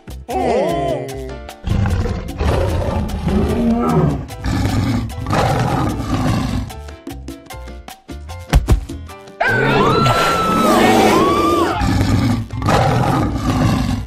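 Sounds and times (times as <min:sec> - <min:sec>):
background music: 0:00.0 - 0:14.0
dinosaur roars: 0:00.3 - 0:06.8, 0:09.4 - 0:14.0.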